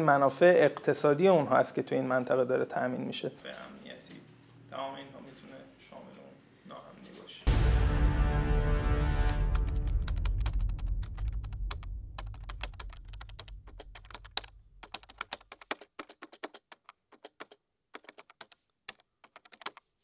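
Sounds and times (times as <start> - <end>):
low music: 7.5 - 13.8
keyboard typing: 9.3 - 20.0.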